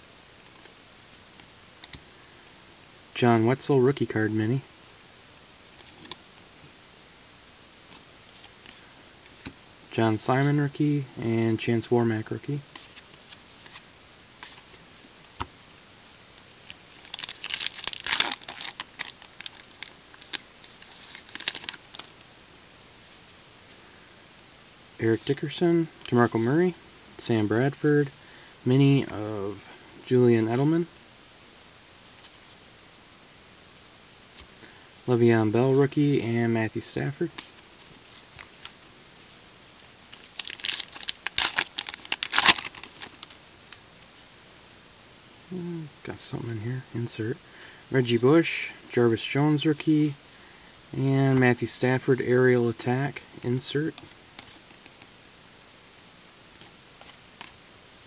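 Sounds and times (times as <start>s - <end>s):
wrapper tearing and crinkling: 16.9s - 22.1s, 40.1s - 43.4s.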